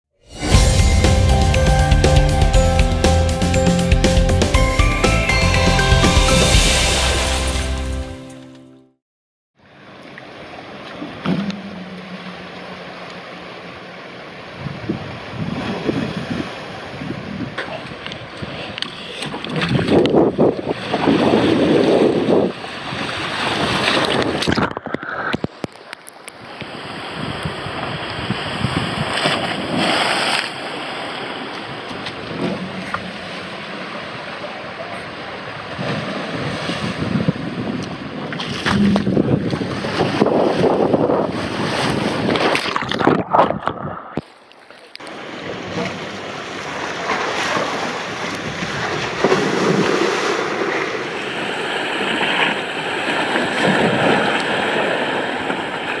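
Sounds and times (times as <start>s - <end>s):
water rushing on a slide: 10.1s - 44.4s, 45.0s - 56.0s
wind buffeting microphone: 14.5s - 24.5s, 27.1s - 29.8s, 35.6s - 44.0s.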